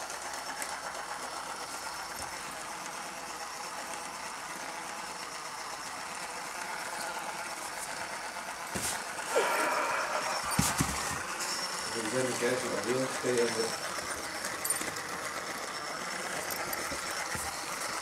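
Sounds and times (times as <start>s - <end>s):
puppy scuffling: 10.4s - 11.4s.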